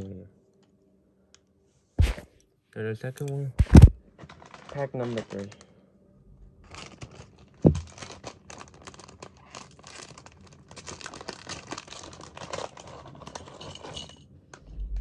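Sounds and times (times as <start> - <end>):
sharp low thump: 2.0 - 2.2, 3.6 - 4.0
plastic packaging crinkling: 3.6 - 5.7, 6.6 - 14.2.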